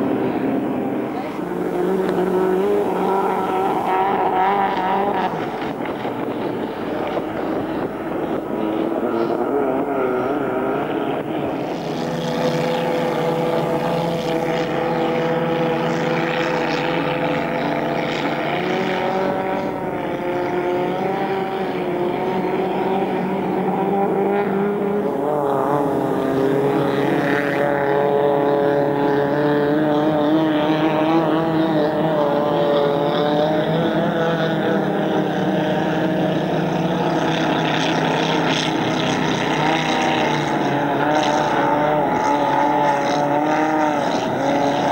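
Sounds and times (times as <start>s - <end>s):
racing boat engines revving: 0.0s - 44.9s.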